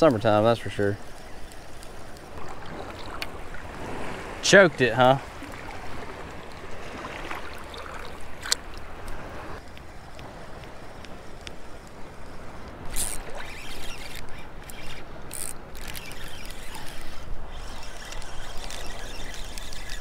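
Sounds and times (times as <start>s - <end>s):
surf water sloshing: 0.0s - 20.0s
water splashes: 2.2s - 9.6s
fishing reel cranking: 11.2s - 20.0s.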